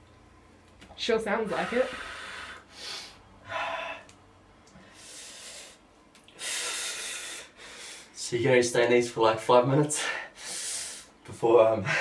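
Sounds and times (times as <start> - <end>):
man gasping breaths: 1.6 - 4.2, 4.8 - 8.2.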